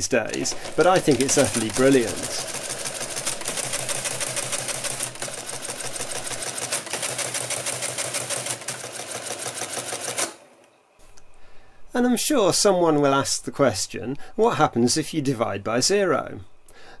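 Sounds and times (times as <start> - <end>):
rapid clatter of mechanical clicks: 0.0 - 10.4.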